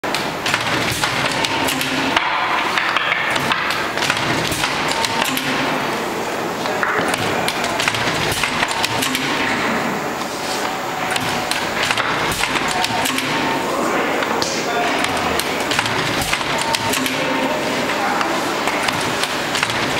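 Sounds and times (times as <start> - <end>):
faint voices: 4.6 - 19.9.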